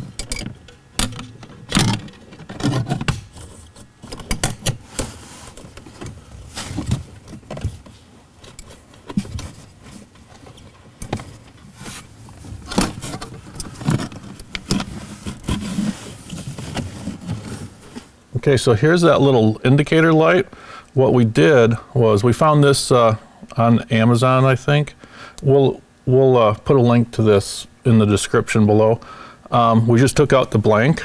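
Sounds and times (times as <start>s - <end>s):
wiring harness rustling and knocking: 0.0s - 18.1s.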